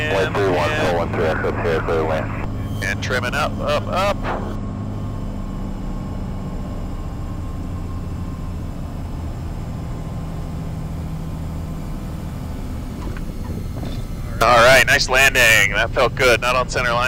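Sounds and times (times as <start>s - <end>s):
propeller aircraft engine droning: 0.0s - 17.0s
airflow noise: 12.9s - 17.0s.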